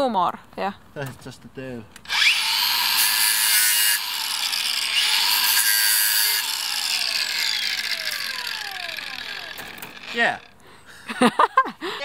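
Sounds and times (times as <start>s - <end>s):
machine motor whirring and grinding: 2.0s - 10.5s.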